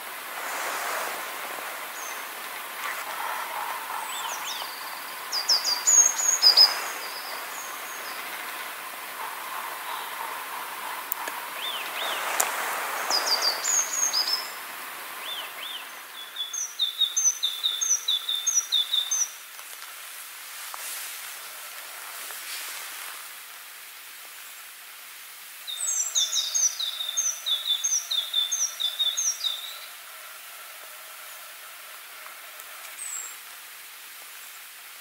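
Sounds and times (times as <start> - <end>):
songbird chirping: 0.0 - 19.9, 25.6 - 33.5
faint outdoor hiss: 0.0 - 35.0.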